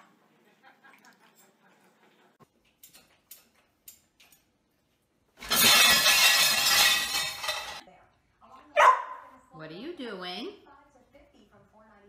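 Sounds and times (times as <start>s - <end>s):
crockery crashing onto tile floor: 5.4s - 7.8s
dishes clinking: 5.4s - 7.8s.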